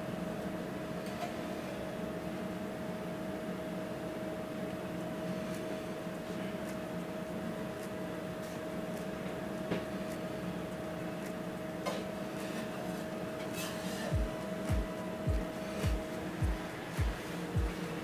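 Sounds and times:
kitchen equipment hum: 11.8 - 18.0.

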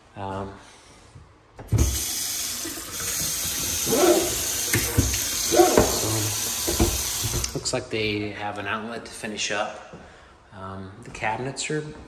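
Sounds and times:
faucet turned on: 1.7 - 7.6
water running into a sink: 1.7 - 7.6.

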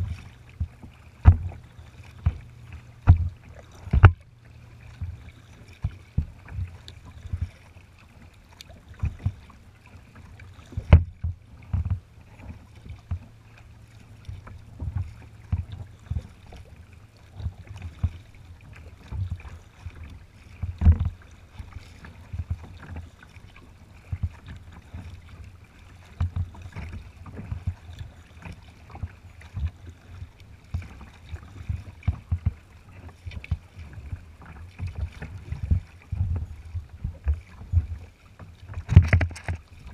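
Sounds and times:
water splashing against a kayak: 0.0 - 39.9
low thumps through the deck: 0.5 - 1.6, 3.0 - 4.2.

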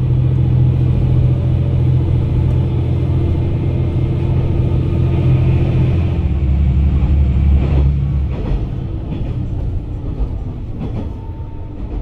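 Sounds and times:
diesel engine drone: 0.0 - 9.7
wheel-on-rail rumble: 0.0 - 12.0
rail-joint clacks: 6.9 - 12.0.

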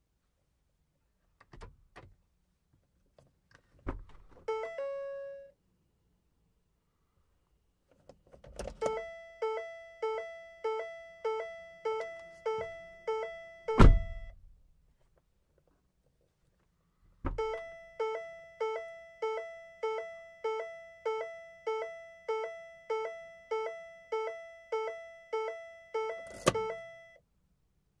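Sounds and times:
car door warning chime: 4.5 - 5.5, 8.8 - 14.4, 17.3 - 27.2
car door thunk: 13.8 - 14.2.

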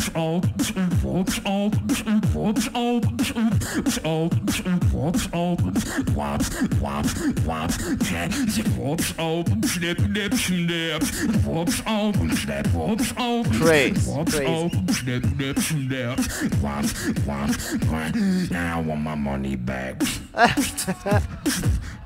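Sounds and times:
beatbox kick and snare: 0.0 - 18.2, 21.4 - 22.0
wavering sung vocals: 13.3 - 16.0.

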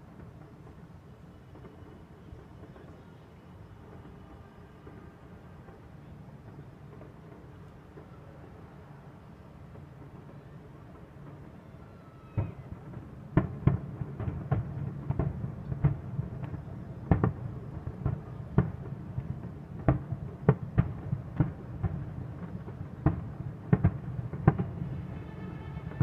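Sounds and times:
distant fireworks bursting: 0.0 - 26.0.

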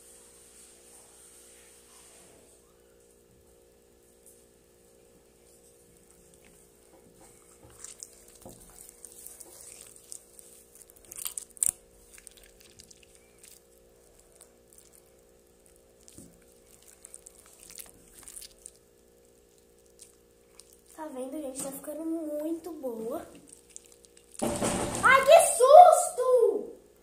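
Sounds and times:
slime squelching: 5.9 - 25.5.

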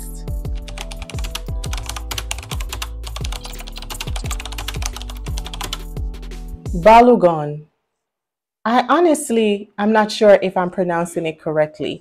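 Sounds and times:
music with deep kick drum: 0.0 - 6.9
rapid clicking: 0.8 - 5.9.

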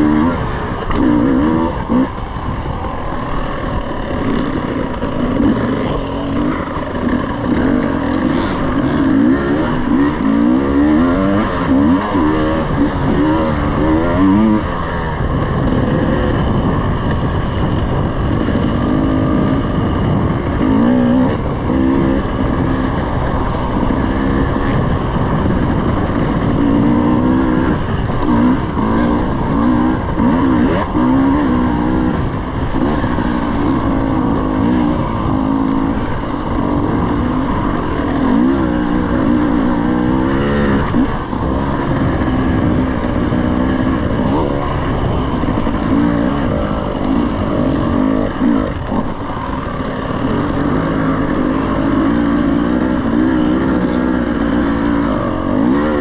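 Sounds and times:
dirt bike engine revving: 0.0 - 56.0
steady rumble: 0.0 - 56.0.

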